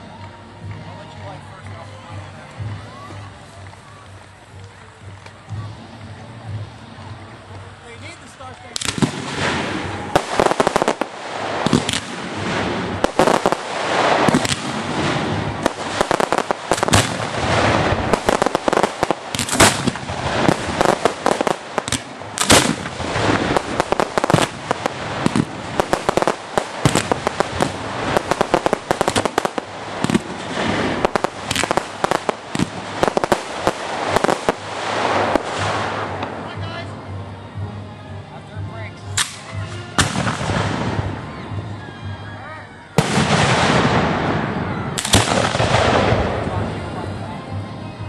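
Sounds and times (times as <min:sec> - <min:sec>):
steady rushing noise: 0:00.0 - 0:41.4
fireworks bangs: 0:08.5 - 0:36.9, 0:39.2 - 0:41.3, 0:43.0 - 0:47.1.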